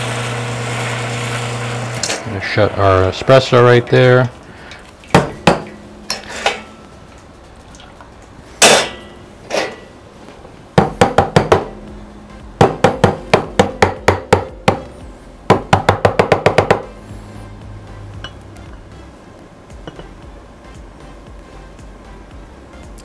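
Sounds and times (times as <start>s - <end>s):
metal pitcher knocking on countertop: 5.1s - 5.8s, 10.8s - 11.7s, 15.5s - 16.8s.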